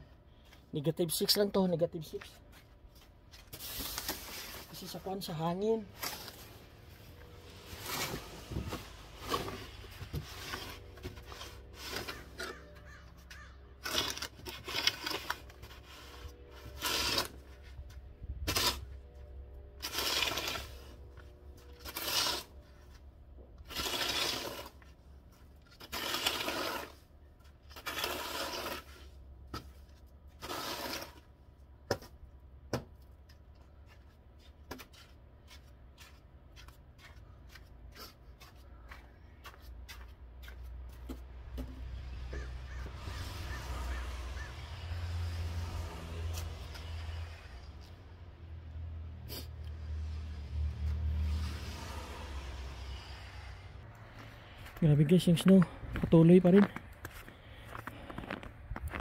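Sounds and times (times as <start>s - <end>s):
snow shovel scraping snow: 3.5s - 5.2s, 6.0s - 13.0s, 13.8s - 17.7s, 18.4s - 18.9s, 19.8s - 22.9s, 23.6s - 25.0s, 25.7s - 27.1s, 27.7s - 29.1s, 30.3s - 31.2s.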